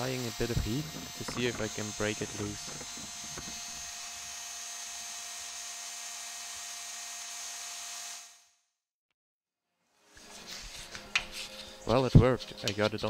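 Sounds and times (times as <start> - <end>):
heat gun fan whirring: 0.0 - 8.3.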